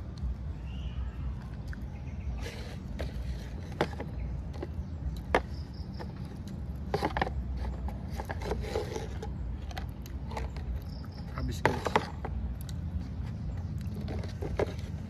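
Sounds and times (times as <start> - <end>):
steady low rumble: 0.0 - 8.4
paper cups knocking on table: 6.8 - 12.5.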